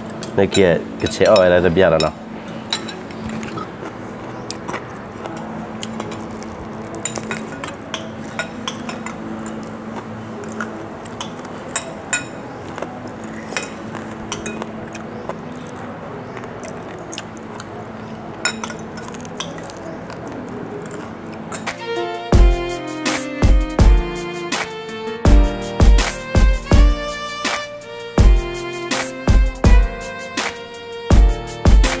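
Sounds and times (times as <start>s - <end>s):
cutlery clinking on ceramic dishes: 0.1s - 3.7s, 7.0s - 9.7s, 10.5s - 12.5s, 13.3s - 14.7s, 18.4s - 19.8s, 20.9s - 21.8s.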